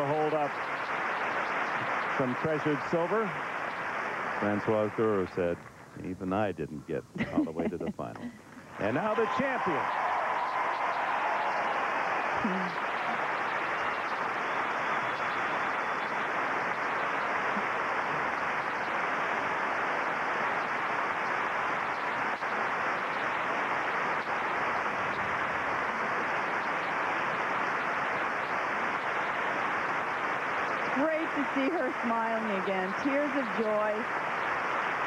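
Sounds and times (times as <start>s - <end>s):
large crowd applauding: 0.0s - 5.4s, 7.5s - 35.0s.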